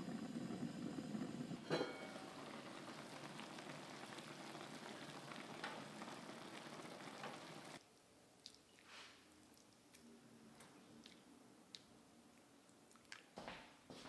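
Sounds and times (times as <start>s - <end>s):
broth bubbling crackle: 0.0s - 7.8s.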